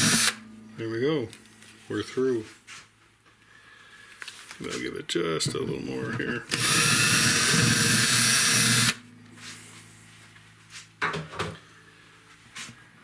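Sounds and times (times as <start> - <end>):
power drill boring into wood: 0.0 - 0.4, 6.5 - 9.0.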